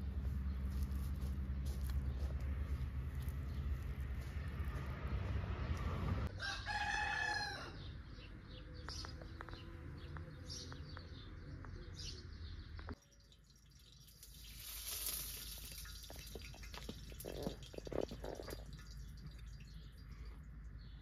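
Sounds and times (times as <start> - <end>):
rooster crowing: 6.3 - 7.9.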